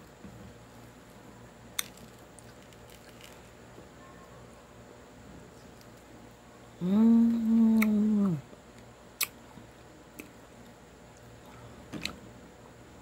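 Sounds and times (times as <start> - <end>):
woman humming: 6.7 - 8.5.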